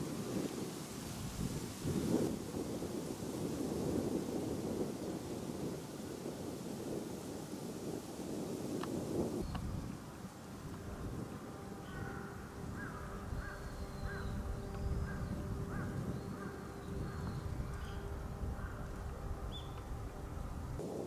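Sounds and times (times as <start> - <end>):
faint steady hum: 0.0 - 21.0
wind rumble on microphone: 0.0 - 21.0
crow cawing: 11.8 - 14.4, 15.0 - 18.0.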